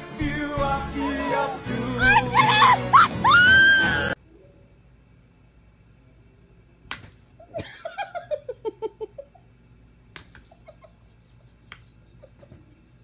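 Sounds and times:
person giggling: 1.0 - 3.4, 7.5 - 9.5, 10.6 - 13.0.

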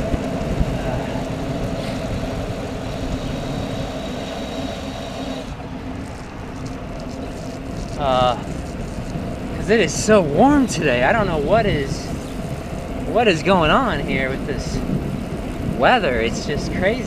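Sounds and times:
faint steady hum: 0.0 - 13.2
bicycle road and wind noise: 0.0 - 17.0.

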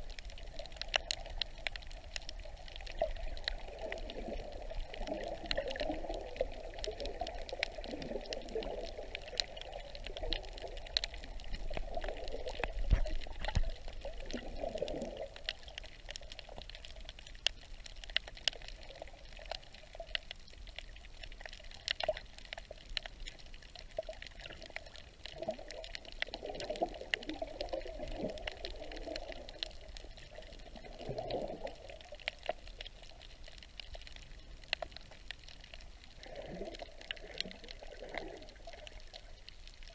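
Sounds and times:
underwater gurgling and sloshing: 0.0 - 39.9
faint sharp clicks: 32.1 - 36.0.

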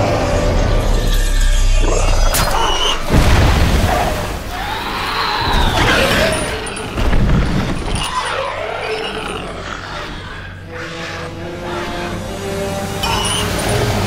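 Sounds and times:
monster screech: 1.2 - 3.2.

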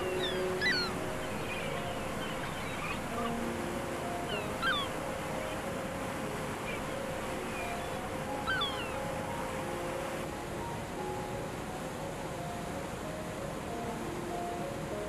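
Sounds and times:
gulls calling: 0.0 - 10.2.

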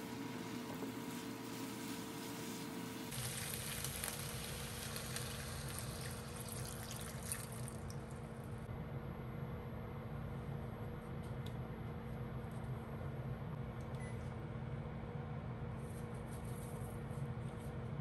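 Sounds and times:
chicken and vegetables frying: 0.0 - 8.2
milk poured into hot pan: 3.1 - 8.1.

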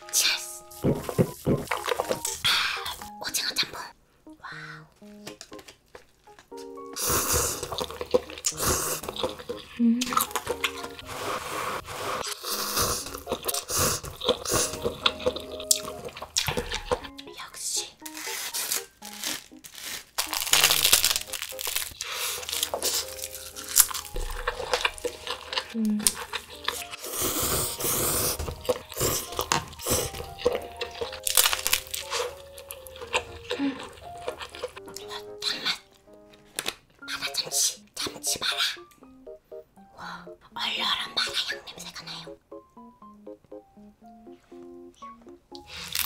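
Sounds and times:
person chewing: 0.7 - 3.2, 4.9 - 38.9, 45.5 - 46.0
person slurping noodles: 7.0 - 16.9, 24.3 - 30.9.

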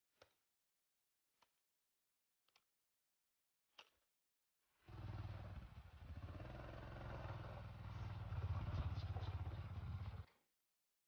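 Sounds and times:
small motorcycle engine running: 4.8 - 10.4.

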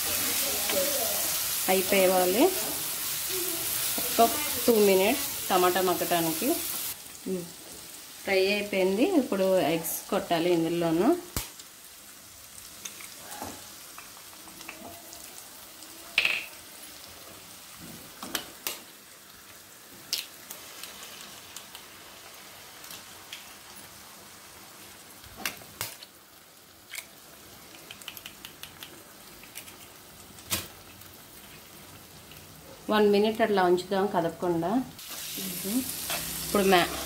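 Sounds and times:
vegetables sizzling in a pan: 0.0 - 37.0
eggs cracking: 26.8 - 30.6.

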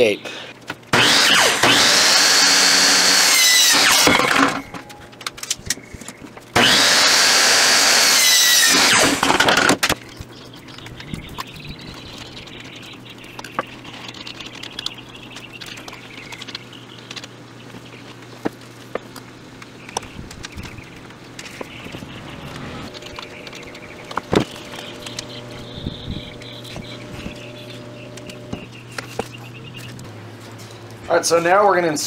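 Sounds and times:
miter saw cutting plastic pipe: 0.9 - 4.9, 6.6 - 10.0, 22.2 - 29.3.

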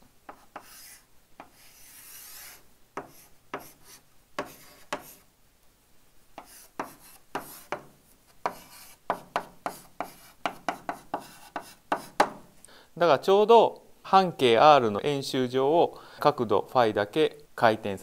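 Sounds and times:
chalk tapping and scratching on chalkboard: 0.3 - 5.3, 6.4 - 12.5.

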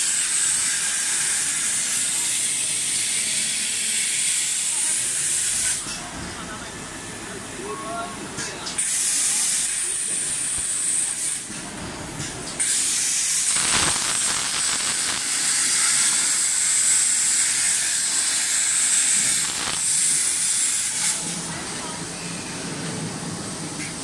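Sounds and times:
plasma torch hissing: 8.7 - 11.6, 12.6 - 21.5.

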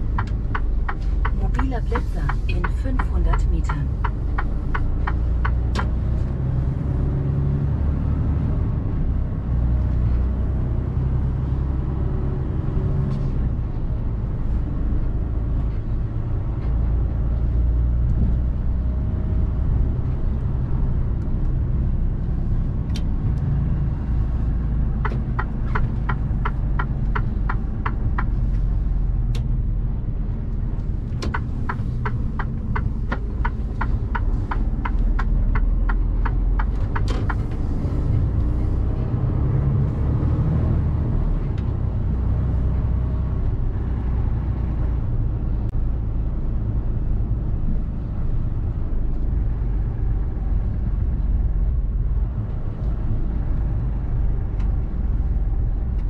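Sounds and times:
truck diesel engine and road noise: 0.0 - 56.0
evenly spaced ticks: 0.1 - 5.6, 25.0 - 28.6, 31.3 - 37.4.

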